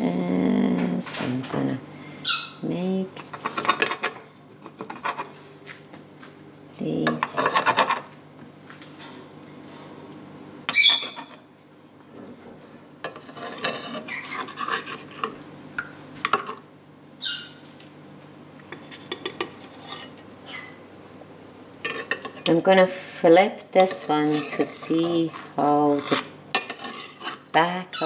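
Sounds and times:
metal spatula scraping a pan: 0:10.8 - 0:11.4, 0:13.1 - 0:15.4, 0:18.8 - 0:20.2, 0:23.8 - 0:27.7.

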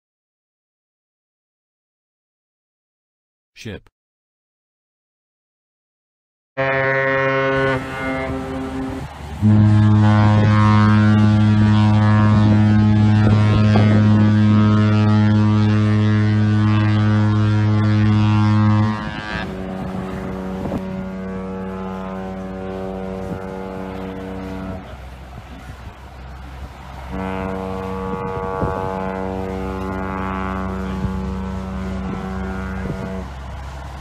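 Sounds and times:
higher-pitched ship horn blasts: 0:06.6 - 0:25.3, 0:27.0 - 0:34.0
deep ship horn: 0:06.6 - 0:34.0.

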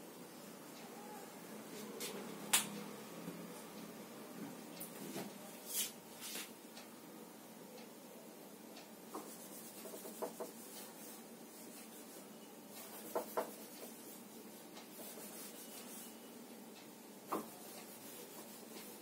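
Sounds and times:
eraser rubbing on whiteboard: 0:09.2 - 0:12.2, 0:12.8 - 0:14.3, 0:14.9 - 0:16.2, 0:17.3 - 0:19.0
eraser knocking against board: 0:13.1 - 0:13.5.

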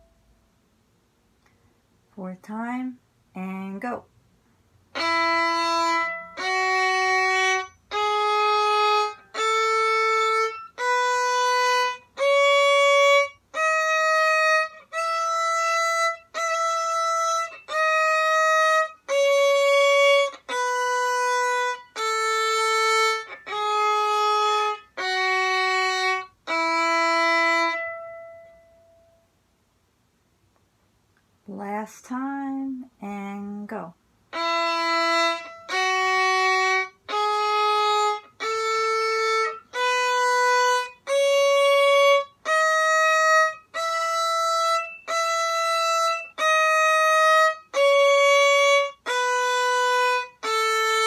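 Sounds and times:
violin playing a scale: 0:04.9 - 0:29.0, 0:34.3 - 0:51.0.

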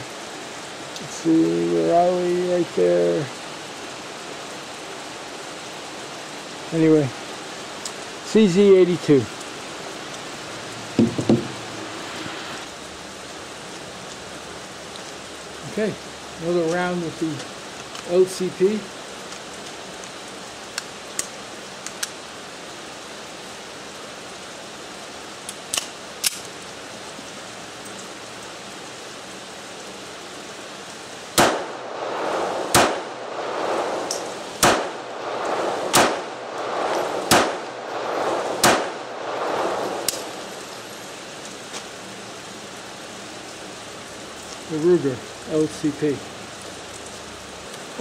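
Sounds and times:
pistol handling clicks: 0:25.5 - 0:26.5
pistol shots with echo: 0:31.4 - 0:31.8, 0:32.7 - 0:33.1, 0:34.6 - 0:36.4, 0:37.2 - 0:37.7, 0:38.6 - 0:39.0.

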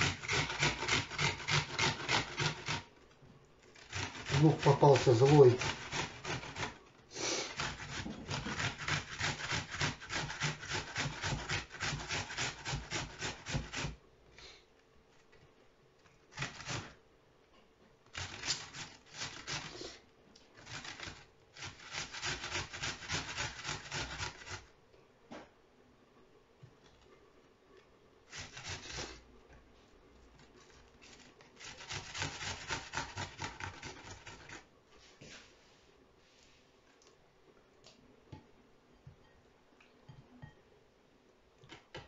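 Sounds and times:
onion rasping on a metal grater: 0:00.0 - 0:02.9, 0:03.6 - 0:14.0, 0:16.3 - 0:17.0, 0:18.1 - 0:20.0, 0:20.6 - 0:24.7, 0:28.3 - 0:29.3, 0:30.4 - 0:34.7.

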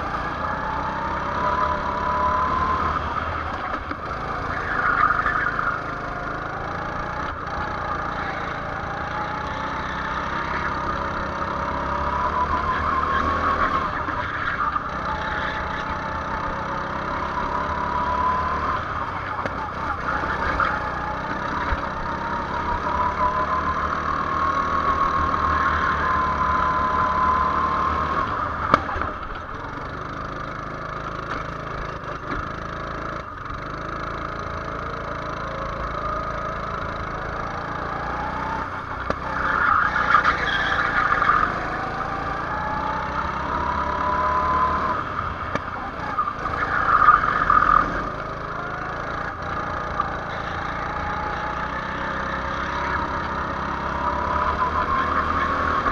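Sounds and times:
go-kart engine revving: 0:00.0 - 0:55.9.

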